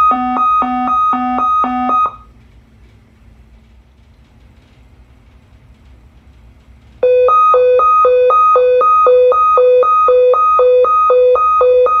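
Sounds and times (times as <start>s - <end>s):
security gate alarm beeping: 0.0s - 2.3s, 7.0s - 12.0s.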